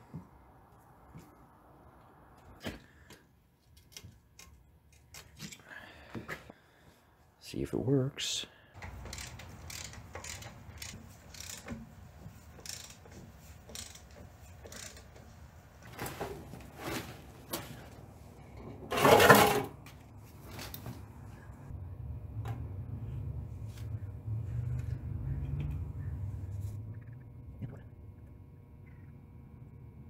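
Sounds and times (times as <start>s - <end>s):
hand tools clicking on metal: 8.8s - 11.7s, 12.6s - 15.2s
metal clatter: 18.7s - 19.8s.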